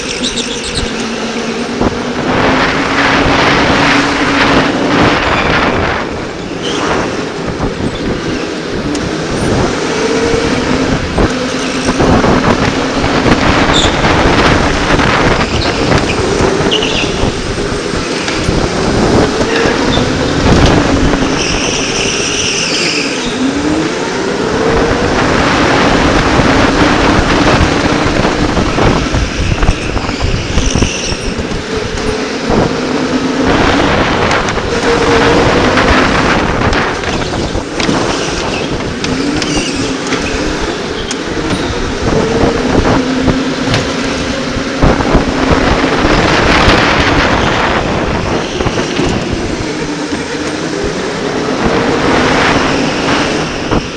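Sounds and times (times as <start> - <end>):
high tyre squeals: 0.0 - 2.2, 3.9 - 12.3, 13.2 - 24.6, 28.5 - 33.9, 37.0 - 53.9
electric go-kart motor whining: 0.0 - 53.9
wind buffeting microphone: 0.0 - 53.9.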